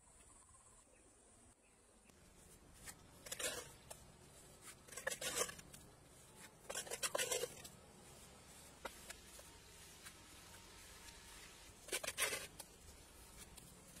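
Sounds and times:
trowel scraping wet mortar: 2.8s - 7.8s, 11.3s - 14.0s.

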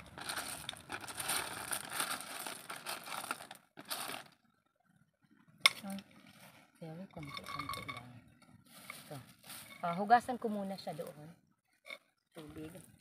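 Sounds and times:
plastic bag crinkling: 0.0s - 4.4s.

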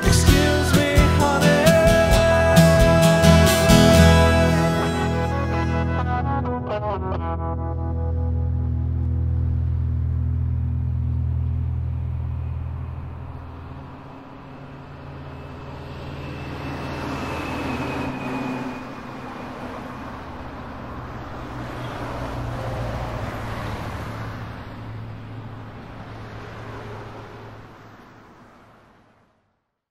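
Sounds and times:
traffic passing: 0.0s - 29.7s
steady low hum: 8.2s - 18.0s.

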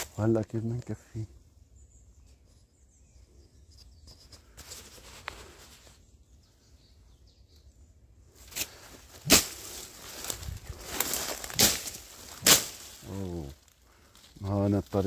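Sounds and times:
dry stalks rustling: 0.0s - 1.0s, 3.8s - 6.2s, 8.3s - 15.0s
faint bird chirps: 0.6s - 8.9s
footsteps through brush: 4.0s - 6.1s, 8.3s - 15.0s
loud crunch: 8.4s - 14.1s.

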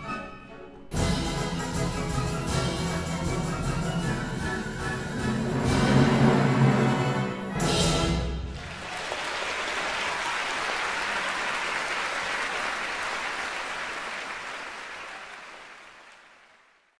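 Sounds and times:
audience applauding: 8.5s - 17.0s.

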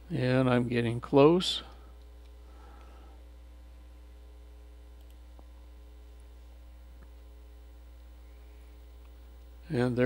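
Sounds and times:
electrical mains hum: 0.0s - 10.0s
faint clicks: 5.0s - 5.5s.

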